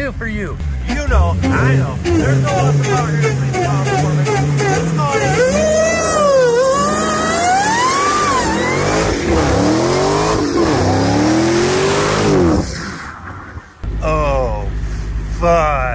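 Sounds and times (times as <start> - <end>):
car engine revving: 0.0 - 15.9
tyres spinning: 0.6 - 13.2.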